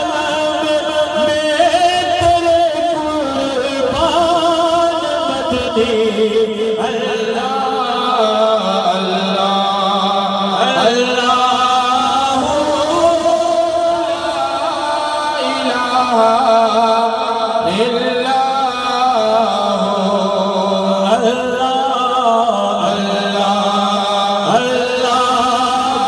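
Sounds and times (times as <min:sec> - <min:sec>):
steady low drone: 0:00.0 - 0:18.3
man singing into a microphone: 0:00.0 - 0:26.0.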